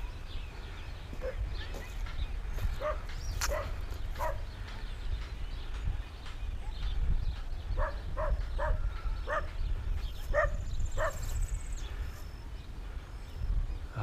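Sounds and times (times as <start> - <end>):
dog barking: 2.8 - 4.5, 7.8 - 9.6, 10.3 - 11.3.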